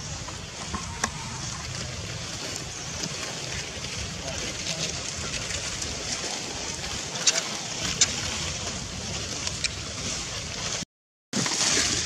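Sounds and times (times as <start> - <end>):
wind rumbling on microphone: 0.0 - 10.8.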